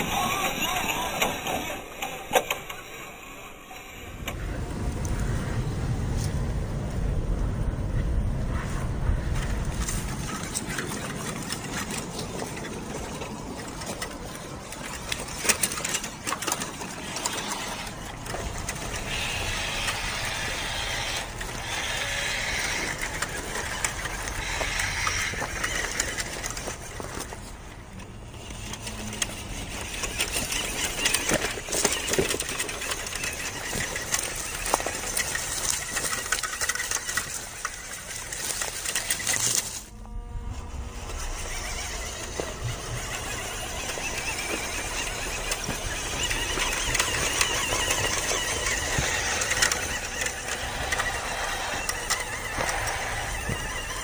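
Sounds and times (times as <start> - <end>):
rc truck motor whirring: 0.0 - 5.2, 9.2 - 54.0
tyres clicking on stones: 9.3 - 39.9, 41.1 - 54.0.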